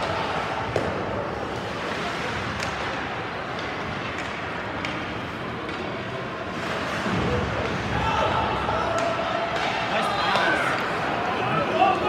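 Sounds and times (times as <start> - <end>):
hockey sticks and puck clacking: 0.0 - 12.0
rink and crowd noise: 0.0 - 12.0.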